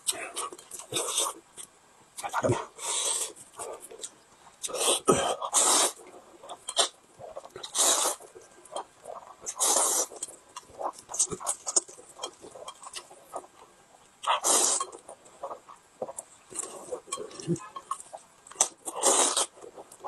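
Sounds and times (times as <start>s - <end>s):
man slurping noodles: 4.8s - 6.0s, 7.7s - 8.2s, 9.5s - 10.1s, 14.4s - 14.9s, 18.9s - 19.5s.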